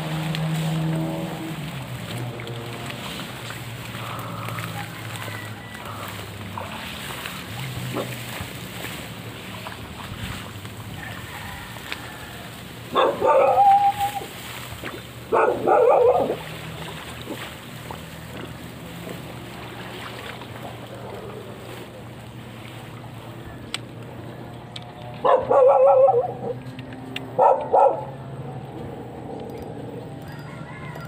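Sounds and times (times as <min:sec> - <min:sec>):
dog barking: 0:12.9 - 0:14.2, 0:15.3 - 0:16.4, 0:25.2 - 0:26.5, 0:27.4 - 0:28.1.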